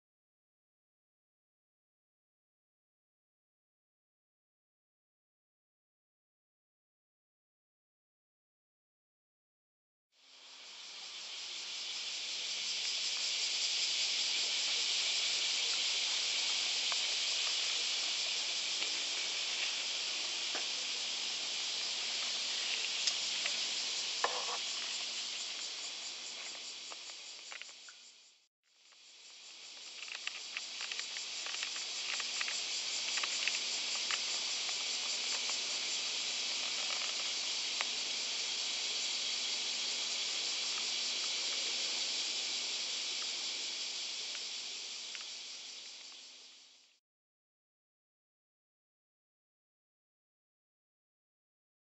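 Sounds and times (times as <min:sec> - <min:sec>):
insects chorus hissing: 0:10.2 - 0:47.0
faint clicks: 0:29.9 - 0:35.6.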